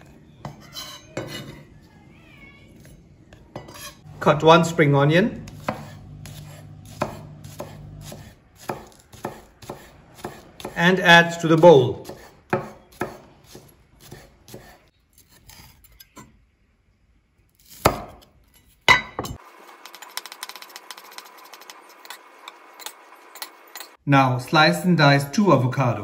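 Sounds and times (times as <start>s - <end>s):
knife chopping on wooden board: 5.4s - 10.8s, 11.6s - 14.8s.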